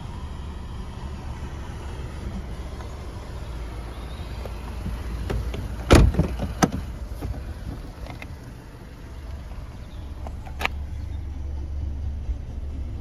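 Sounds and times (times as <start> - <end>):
steady low rumble: 0.0 - 13.0
car door thudding: 4.8 - 8.3.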